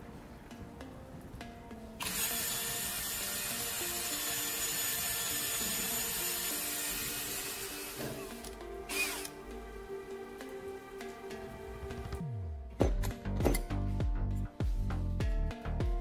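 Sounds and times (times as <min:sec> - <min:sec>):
electric drill boring wood: 0:02.0 - 0:09.3.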